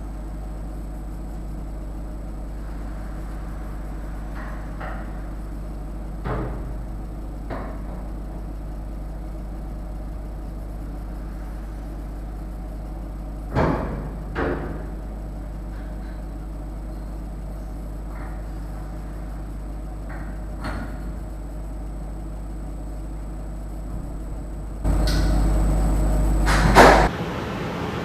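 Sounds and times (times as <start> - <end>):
low machine hum: 0.0 - 28.0.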